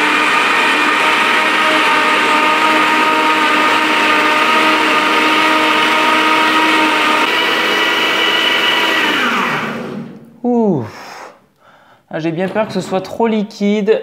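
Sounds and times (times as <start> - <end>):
blender motor whine: 0.0 - 10.2.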